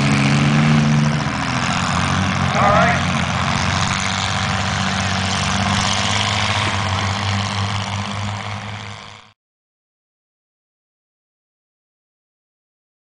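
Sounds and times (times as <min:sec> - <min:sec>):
racing car engines droning: 0:00.0 - 0:09.4.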